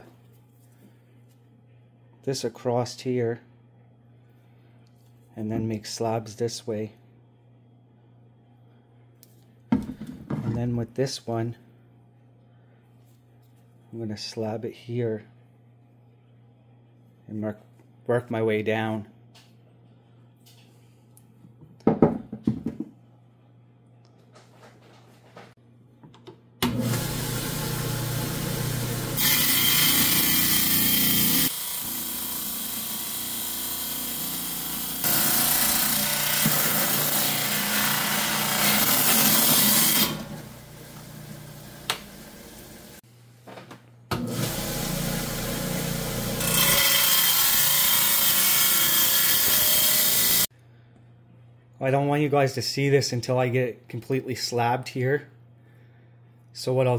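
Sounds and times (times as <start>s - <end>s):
saw motor humming: 26.7s - 43.0s, 44.2s - 50.5s.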